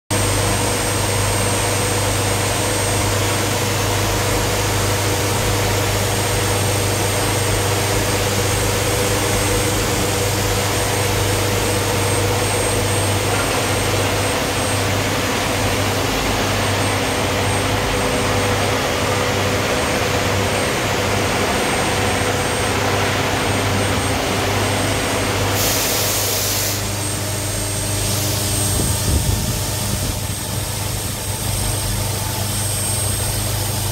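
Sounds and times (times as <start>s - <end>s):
milling machine hum with high whine: 0.1s - 33.9s
loud coolant hiss: 25.4s - 32.3s.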